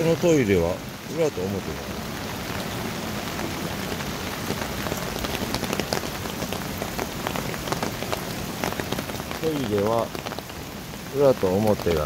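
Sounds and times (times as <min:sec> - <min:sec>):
raindrops tapping: 0:00.0 - 0:12.0
steady rain: 0:00.0 - 0:12.0.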